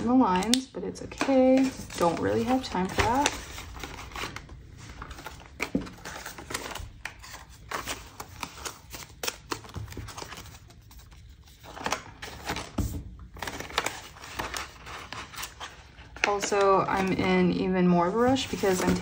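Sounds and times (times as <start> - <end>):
rustling paper: 1.2 - 17.4, 18.0 - 19.0.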